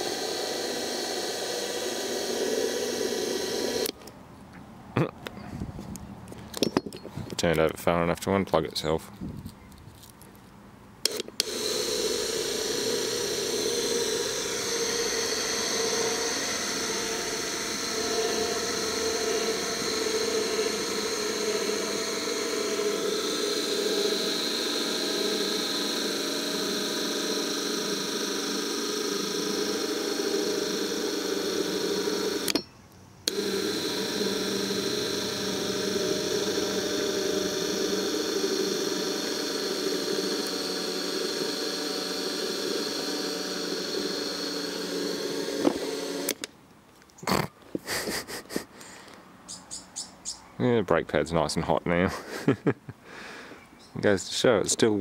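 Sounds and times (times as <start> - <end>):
electric motor humming and whining: 0.0 - 4.0, 11.0 - 46.5.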